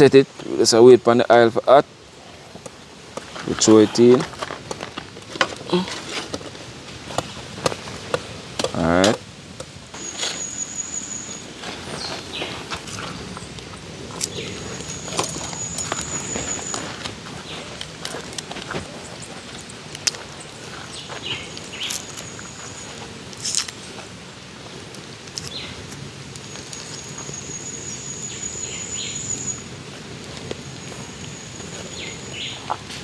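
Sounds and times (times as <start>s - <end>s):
birds chirping: 9.9s - 23.2s, 25.4s - 33.0s.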